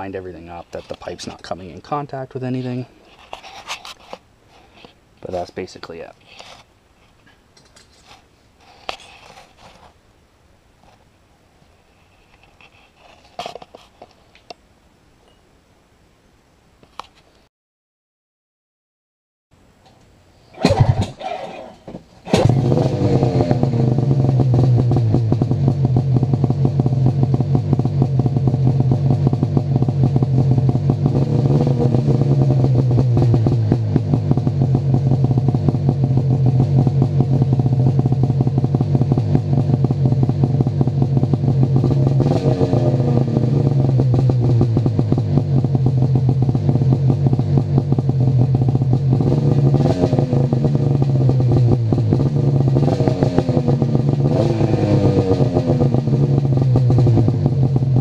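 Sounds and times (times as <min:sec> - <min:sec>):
snowmobile engine idling: 0:32.4 - 0:42.2, 0:43.2 - 0:49.2, 0:56.2 - 0:58.0.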